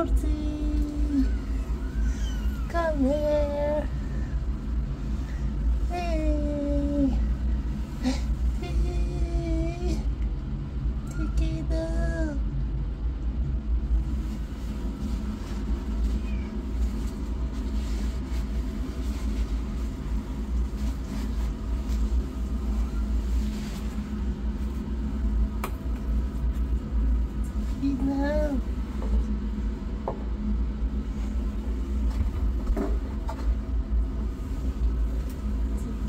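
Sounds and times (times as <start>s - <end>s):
steady low rumble: 0.0s - 36.0s
cat meowing: 16.2s - 16.6s.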